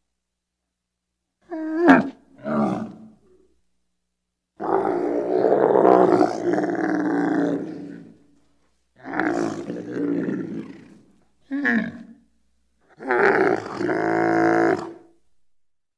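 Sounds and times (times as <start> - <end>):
camel groaning: 13.0 - 15.0.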